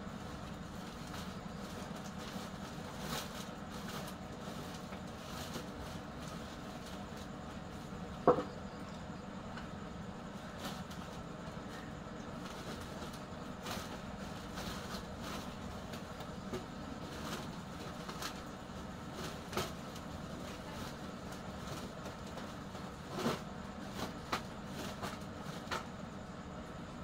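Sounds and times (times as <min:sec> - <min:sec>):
plastic sack rustling: 0:00.2 - 0:08.0, 0:12.3 - 0:25.8.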